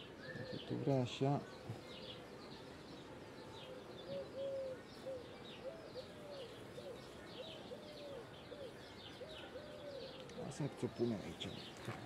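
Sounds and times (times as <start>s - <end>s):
small birds chirping: 0.0s - 12.0s
dove cooing: 0.2s - 0.8s, 3.6s - 10.4s.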